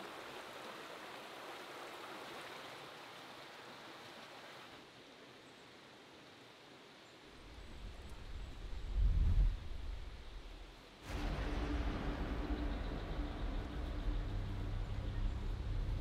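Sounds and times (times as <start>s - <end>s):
faint outdoor hiss: 0.0s - 16.0s
low rumble: 7.8s - 16.0s.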